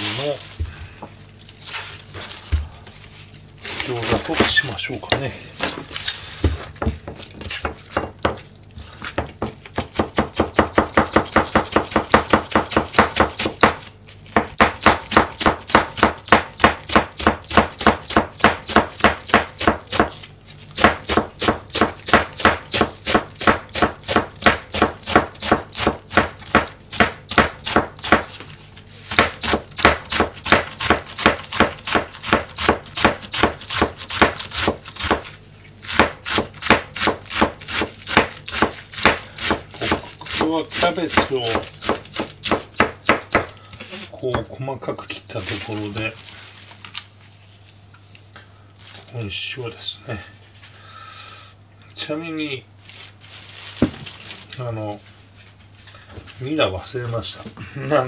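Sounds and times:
knife chopping cabbage on board: 4.0 - 5.2, 9.1 - 28.5, 29.1 - 43.6.

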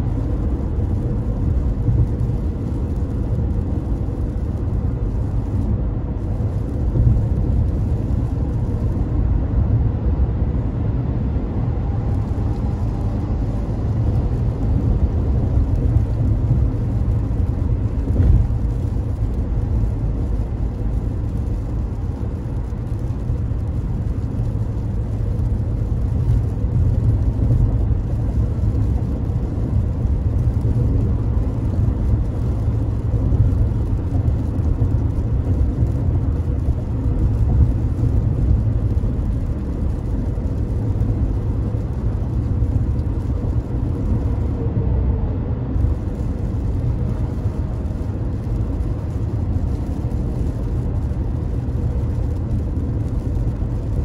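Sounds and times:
car engine and tyres rumbling: 0.0 - 54.0.

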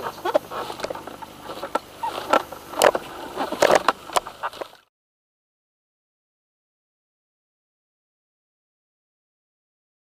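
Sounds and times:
handling knocks and rustles: 0.0 - 4.8.

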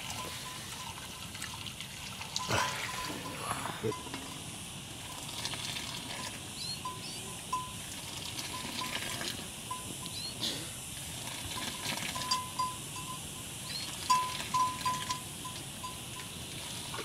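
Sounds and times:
birds chirping: 6.5 - 7.7, 10.0 - 10.4
small bell ringing: 6.8 - 7.8, 12.2 - 13.3, 14.1 - 16.1.

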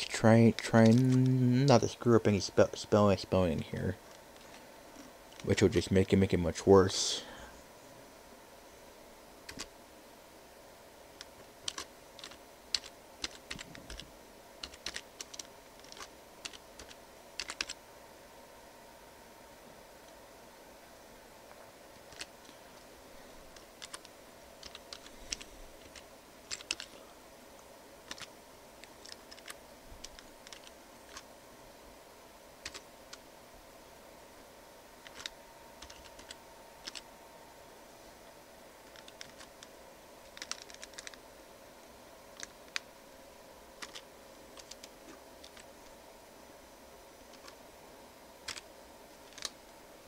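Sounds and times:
faint steady hum: 0.0 - 50.0
keyboard typing: 0.6 - 1.4, 9.5 - 9.7, 11.2 - 17.8, 22.0 - 22.6, 23.5 - 27.0, 28.0 - 31.3, 32.6 - 33.2, 35.0 - 37.1, 38.8 - 41.2, 43.8 - 45.7, 47.3 - 47.6, 48.4 - 49.6.

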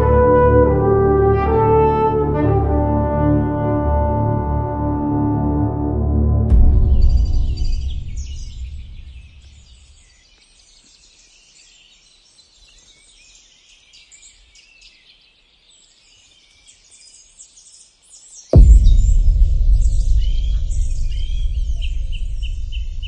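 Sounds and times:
soft ambient music: 0.0 - 9.6, 18.6 - 23.0
loud deep rumble: 6.0 - 9.6, 18.6 - 23.0
birds chirping: 6.8 - 23.0.

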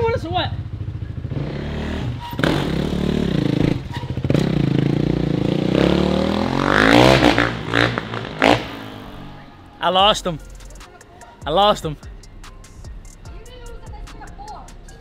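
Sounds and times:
dirt bike engine revving: 0.6 - 10.4.

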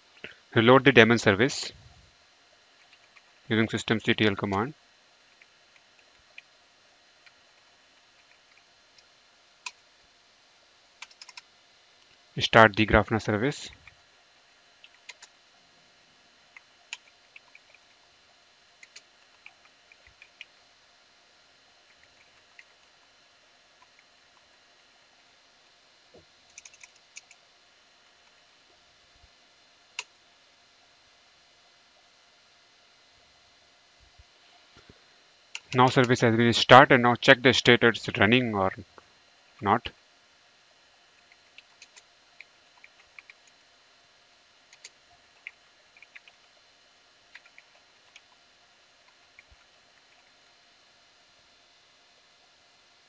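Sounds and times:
keyboard keystrokes: 11.0 - 11.4, 26.5 - 27.4.

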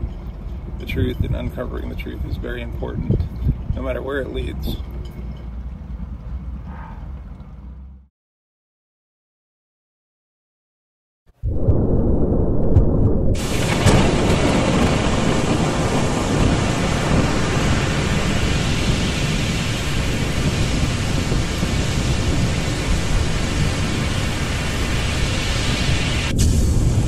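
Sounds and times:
deep rumble: 11.3 - 27.0
rough sea rushing: 13.3 - 27.0.

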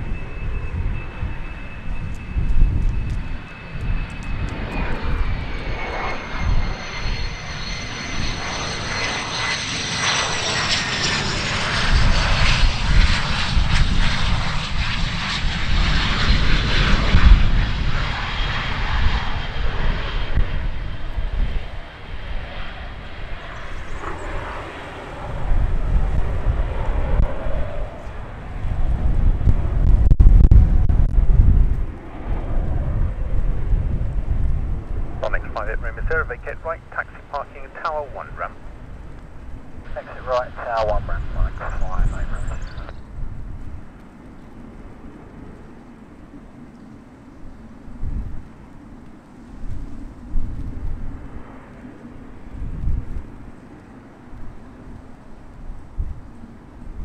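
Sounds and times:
jet engine rush: 0.0 - 57.0
jet turbofan whine: 0.0 - 57.0
heavy low rumbling: 33.0 - 43.6.

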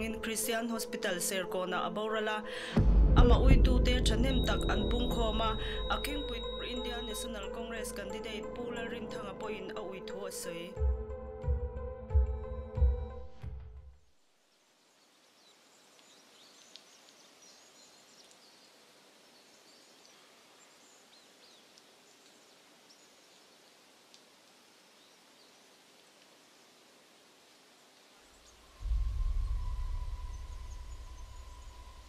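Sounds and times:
low music drone: 2.7 - 10.2, 28.8 - 32.0
faint forest ambience: 3.7 - 10.8, 13.2 - 32.0.

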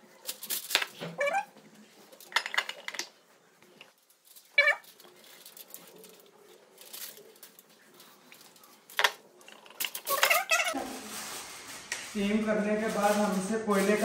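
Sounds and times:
foil crinkling and rustling: 3.9 - 8.9, 9.9 - 14.0.

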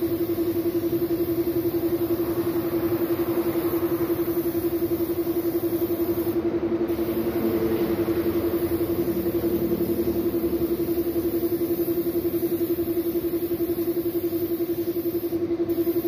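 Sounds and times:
air compressor humming: 0.0 - 16.0
spray gun hissing: 0.0 - 16.0.

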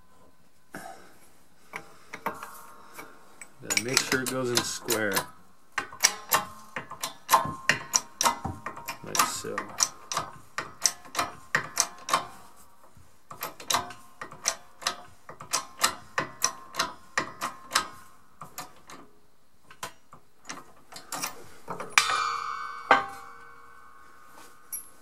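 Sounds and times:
press pump metallic clicks: 1.7 - 12.4, 13.3 - 19.1
loud ringing metal clank: 22.0 - 25.0.

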